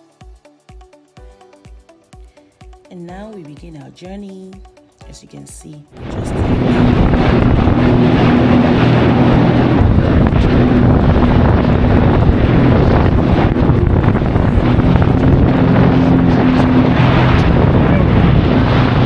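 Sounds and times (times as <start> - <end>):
jet ski engine running: 6.0 - 19.0
wind buffeting microphone: 6.0 - 19.0.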